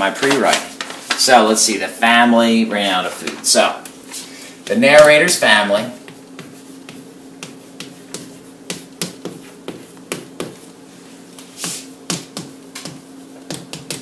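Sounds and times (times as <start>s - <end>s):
steady low hum: 0.0s - 14.0s
chalk tapping and scratching: 4.1s - 14.0s.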